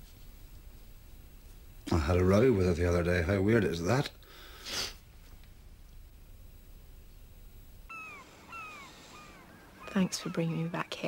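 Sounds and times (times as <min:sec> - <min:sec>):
gulls mewing: 0:07.9 - 0:11.0.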